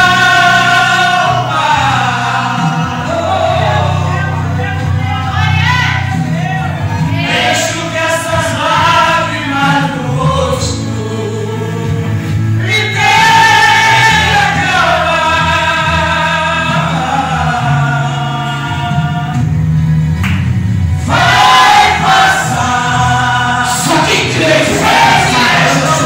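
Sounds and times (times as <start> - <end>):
man singing gospel: 0.0 - 5.4, 7.0 - 19.5, 21.0 - 26.0.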